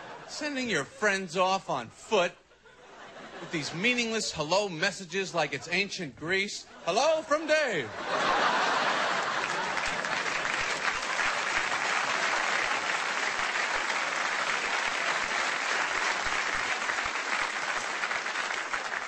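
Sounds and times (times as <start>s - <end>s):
audience clapping: 8.3s - 19.0s.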